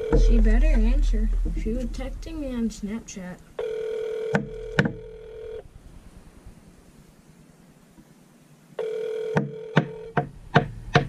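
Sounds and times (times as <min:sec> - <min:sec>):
phone ringback tone: 0:00.0 - 0:00.5, 0:03.6 - 0:05.6, 0:08.8 - 0:10.2
sharp taps: 0:04.3 - 0:05.0.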